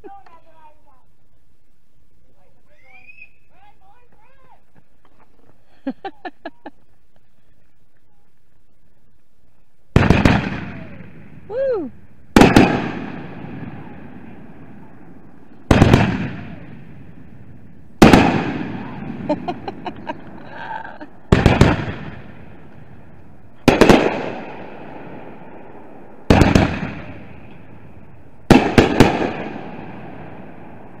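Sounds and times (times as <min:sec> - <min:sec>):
fireworks bangs: 0:09.9 - 0:31.0.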